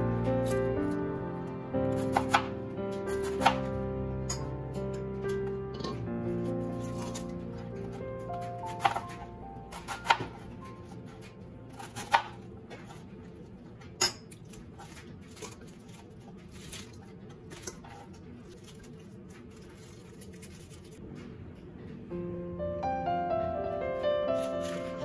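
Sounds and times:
knife chopping cabbage on board: 1.9 - 2.5, 3.1 - 3.7, 7.9 - 13.0.

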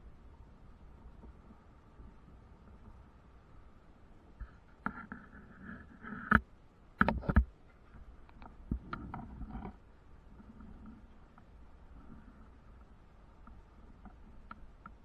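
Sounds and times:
sharp knocks and clicks: 6.1 - 7.6.

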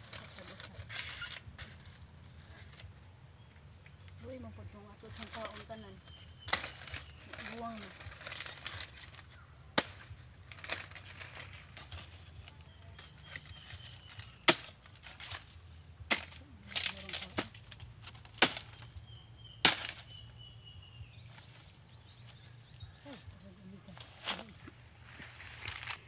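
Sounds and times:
machete chopping strikes: 9.7 - 10.8, 14.4 - 15.5, 16.1 - 18.9, 19.6 - 20.2.

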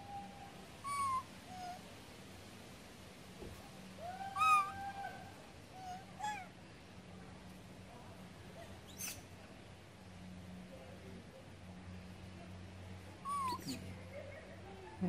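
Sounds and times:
macaque coo calls: 0.0 - 1.8, 4.0 - 6.5, 13.2 - 14.0.

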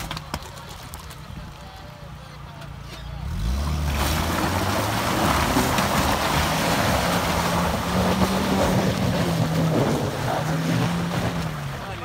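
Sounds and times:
engine running at high revs: 3.2 - 11.7.

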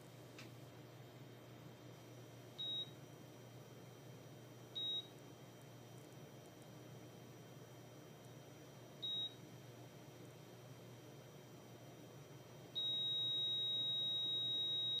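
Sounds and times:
heart monitor beep: 2.6 - 3.0, 4.8 - 5.1, 9.0 - 9.4, 12.8 - 15.0
heart monitor flatline tone: 12.8 - 15.0.

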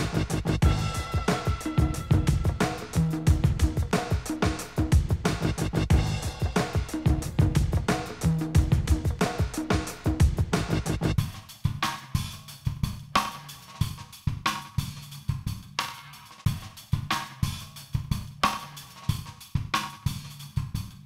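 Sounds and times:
low bass line: 0.0 - 11.2
cymbal and hi-hat hits: 0.0 - 21.0
drum kit playing a beat: 0.0 - 21.0.

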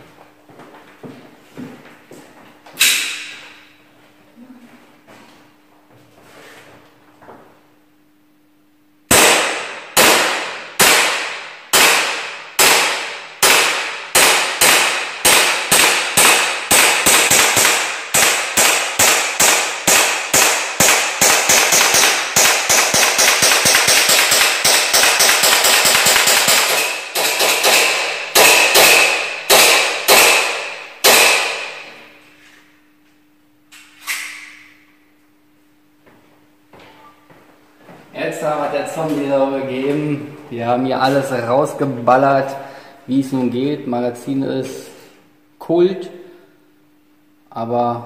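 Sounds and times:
airsoft pistol shots: 9.1 - 32.0.

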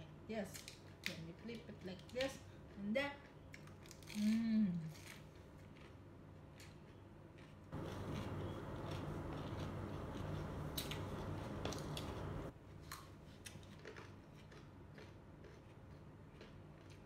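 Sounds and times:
chewing crunchy carrot: 2.6 - 17.0
low hum: 7.8 - 12.5.

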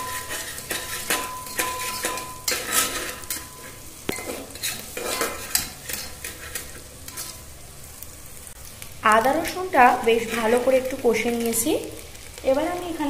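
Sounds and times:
metal spatula scraping pot: 0.0 - 7.5, 10.2 - 10.7
garlic and ginger sizzling: 0.0 - 13.0.

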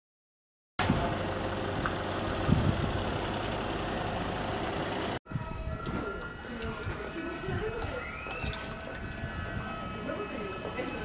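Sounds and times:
vehicle engine running: 0.8 - 5.2
street noise: 0.8 - 11.0.

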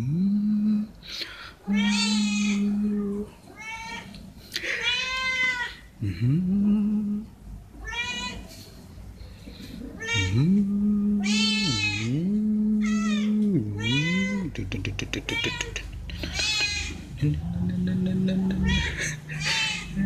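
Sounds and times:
cats meowing: 1.6 - 2.8, 3.5 - 5.8, 7.8 - 8.6, 9.9 - 10.6, 11.2 - 12.2, 12.8 - 17.2, 18.2 - 20.0.

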